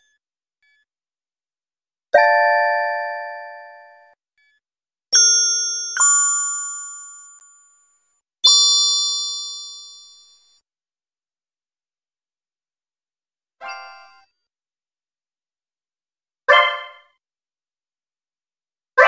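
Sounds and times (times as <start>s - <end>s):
bell-like chime notes: 5.2s - 10.2s.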